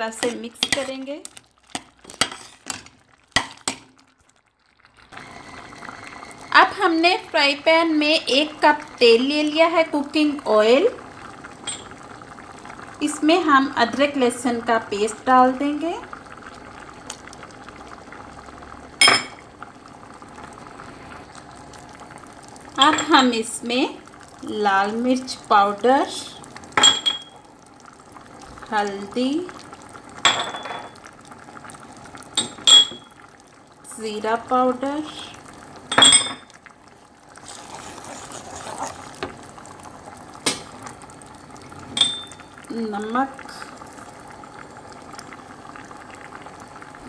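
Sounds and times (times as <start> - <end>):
paste sizzling in oil: 0.0 - 4.0, 36.9 - 40.8
oil bubbling in a frying pan: 0.0 - 47.0.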